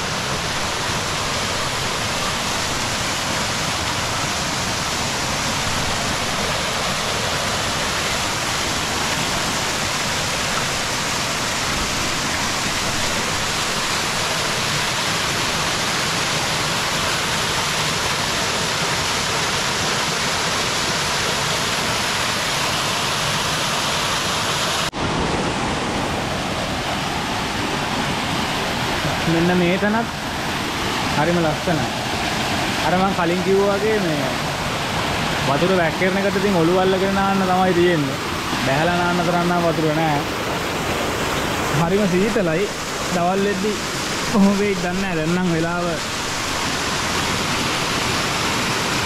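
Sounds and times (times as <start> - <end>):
waterfall splashing onto rocks: 0.0 - 24.9.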